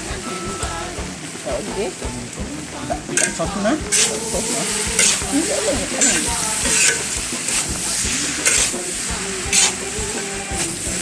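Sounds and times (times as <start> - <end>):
noodles sizzling in a wok: 0.0 - 11.0
metal spatula scraping wok: 3.2 - 11.0.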